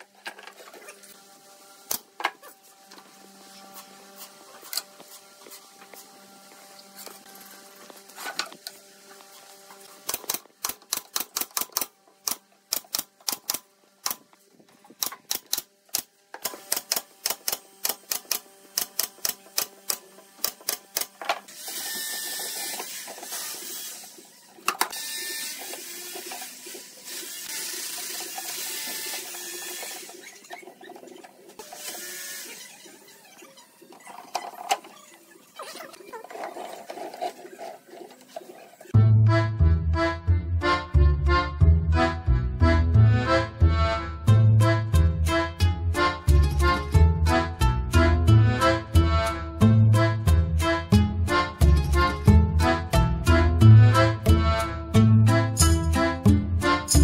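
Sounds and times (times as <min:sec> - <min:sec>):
wooden parts sliding: 0:32.8 - 0:38.9.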